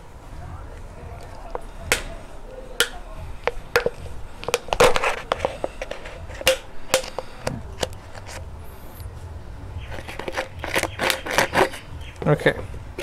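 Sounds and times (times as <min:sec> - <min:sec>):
plastic bottle clicking and crackling: 0:01.2 - 0:02.1, 0:02.8 - 0:08.4, 0:09.9 - 0:12.6.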